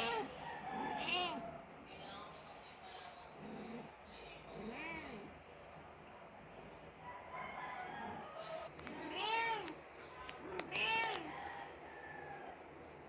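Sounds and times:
cat meowing: 0.0s - 0.3s, 0.9s - 1.5s, 8.9s - 9.8s, 10.6s - 11.3s.

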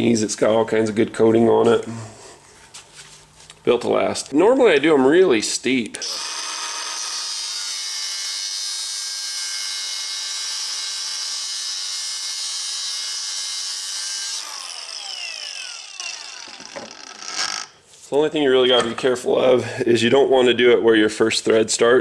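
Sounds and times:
angle grinder cutting steel: 6.0s - 17.7s.

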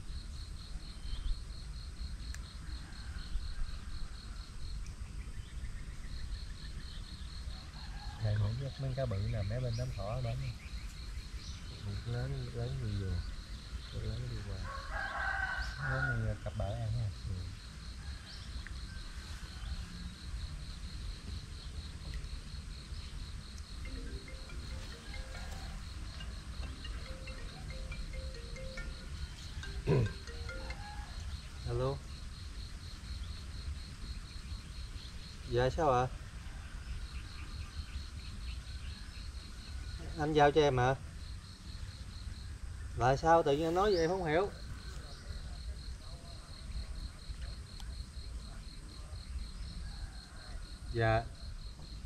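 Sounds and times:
insect chirping: 0.0s - 52.0s.

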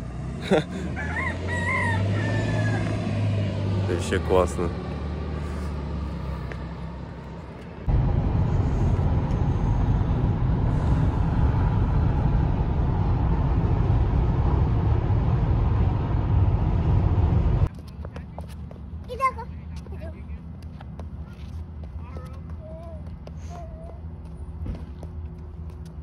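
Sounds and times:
vehicle engine idling: 0.0s - 26.0s
vehicle rumbling under way: 0.0s - 26.0s.

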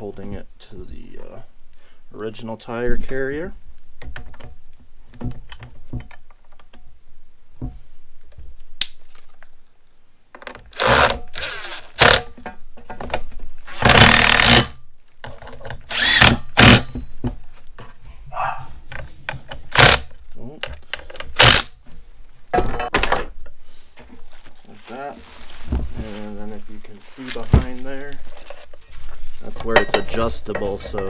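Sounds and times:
power driver spinning: 15.8s - 16.8s
clicks of handling metal parts: 20.6s - 21.4s.

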